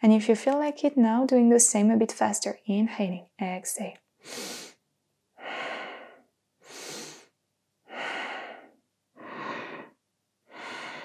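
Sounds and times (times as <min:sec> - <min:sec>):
woman breathing in and out: 0:04.2 - 0:04.8, 0:05.4 - 0:11.0.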